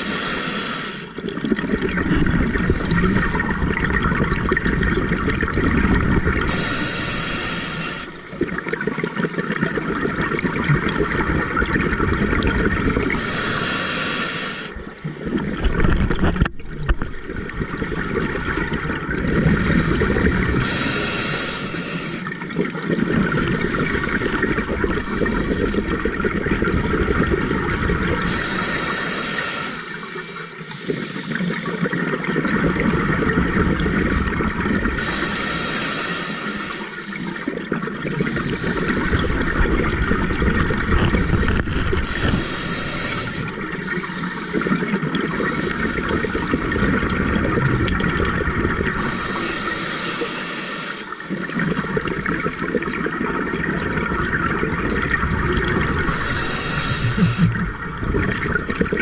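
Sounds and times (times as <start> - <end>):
regulator hiss on inhalation: 0.0 - 1.1, 6.5 - 8.2, 13.2 - 15.5, 19.6 - 22.3, 28.2 - 31.6, 35.0 - 37.5, 41.1 - 46.6, 49.0 - 51.2, 56.1 - 57.7
gurgling exhaled bubbles: 1.0 - 59.0.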